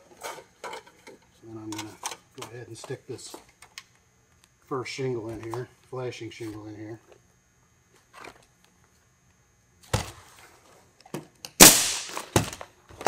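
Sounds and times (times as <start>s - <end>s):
nail gun firing: 11.6s - 12.6s.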